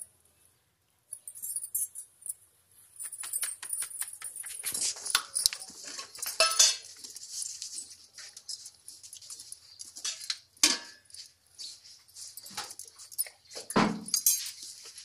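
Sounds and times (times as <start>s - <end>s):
metal tongs scraping and clinking: 4.6s - 7.0s, 9.8s - 11.1s, 12.4s - 15.0s.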